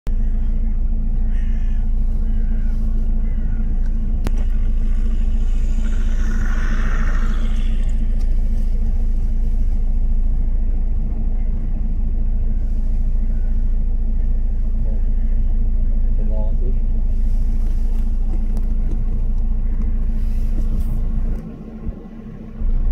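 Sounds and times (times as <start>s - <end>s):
car engine idling: 0.1s - 22.9s.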